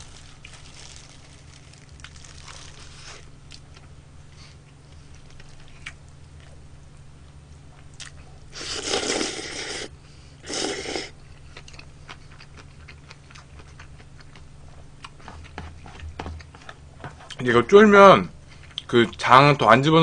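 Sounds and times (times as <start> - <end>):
person slurping noodles: 8.6 - 11.2.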